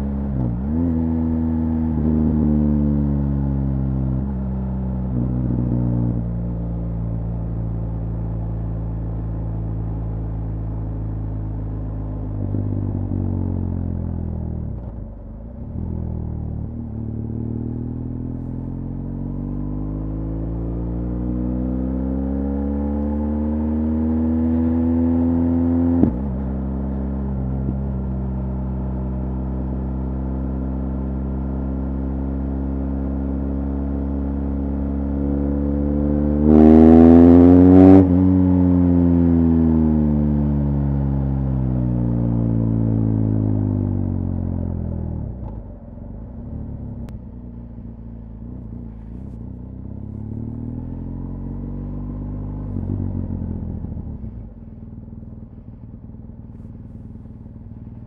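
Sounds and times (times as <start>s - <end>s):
motorcycle engine revving: 16.8s - 45.6s, 47.7s - 58.0s.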